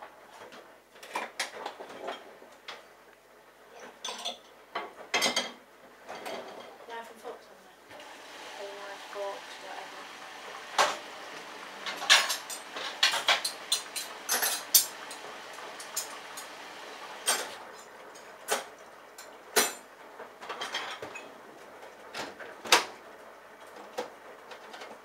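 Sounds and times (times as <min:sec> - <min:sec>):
washing machine drum swishing: 0:07.9 - 0:17.6.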